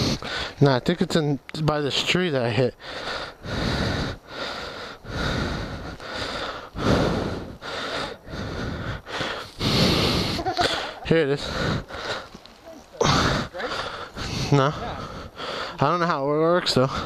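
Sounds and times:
person breathing hard: 0.0s - 0.6s, 2.8s - 12.4s, 13.0s - 15.8s
footsteps in dry grass: 11.5s - 14.4s.

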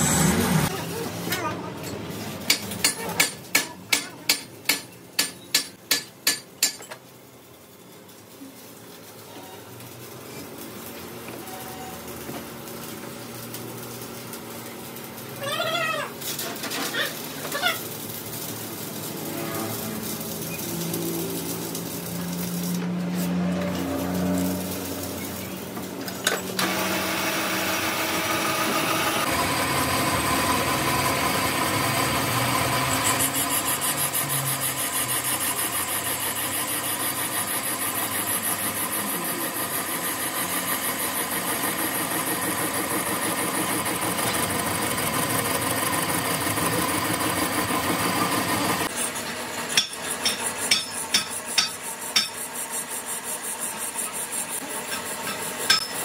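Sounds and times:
metal lathe machining: 26.6s - 56.0s.

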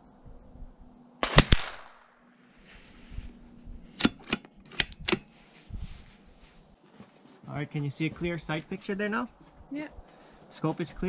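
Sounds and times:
rifle bolt metallic clicks: 4.0s - 5.4s.

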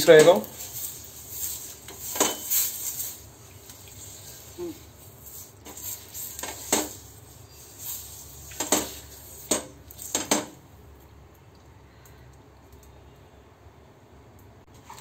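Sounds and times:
fork tines clinking on pan: 0.0s - 3.2s
onion rubbing on hot pan: 0.0s - 10.4s.

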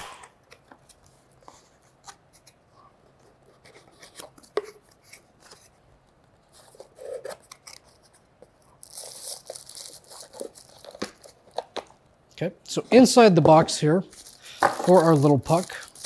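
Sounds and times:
plastic wrap rustling: 8.8s - 11.6s, 13.9s - 16.0s.

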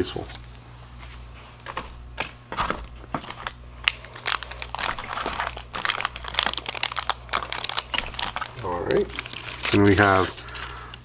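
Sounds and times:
plastic packaging crinkling: 1.6s - 10.9s.

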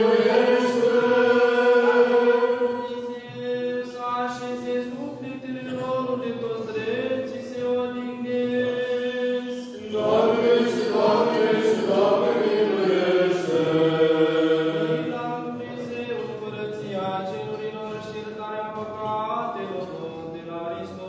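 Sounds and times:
choir chanting: 0.0s - 3.4s, 8.4s - 16.3s.

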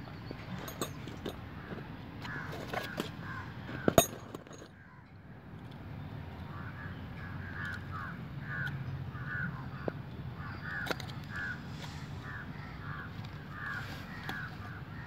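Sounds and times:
crow cawing: 1.6s - 4.0s, 4.8s - 5.1s, 6.5s - 15.0s.

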